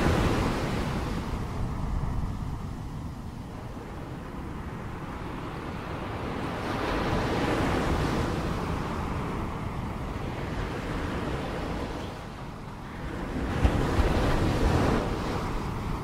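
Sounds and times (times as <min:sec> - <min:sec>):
ocean waves washing onto shore: 0:00.0 - 0:16.0.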